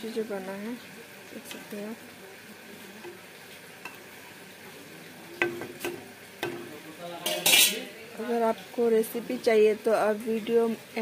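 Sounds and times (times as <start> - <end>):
curry simmering: 0.0 - 11.0
spatula knocking against wok: 5.4 - 6.8
metal spatula scraping wok: 5.5 - 7.9.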